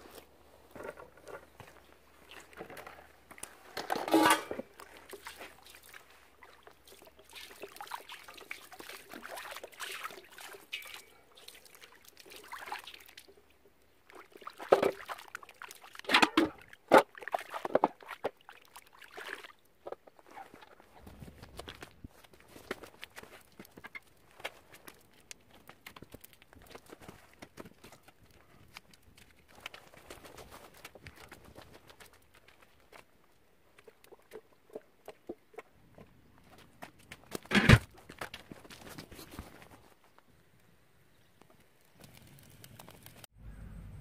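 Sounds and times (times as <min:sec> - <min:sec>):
water sloshing in plastic basin: 0:00.8 - 0:25.0.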